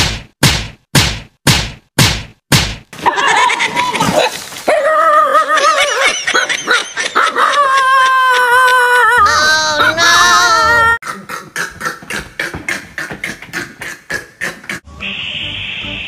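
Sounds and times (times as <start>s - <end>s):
sharp slap-like whacks: 0.0s - 2.9s
dog yelping and howling: 3.3s - 11.0s.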